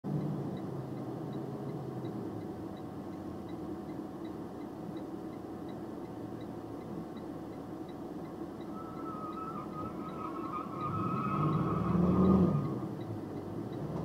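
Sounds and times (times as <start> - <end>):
faint regular ticking: 0.2 - 9.4.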